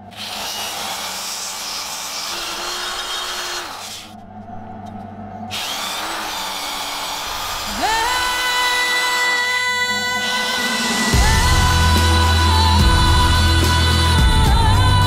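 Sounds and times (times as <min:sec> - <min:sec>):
die grinder sanding steel: 0:00.0 - 0:04.1.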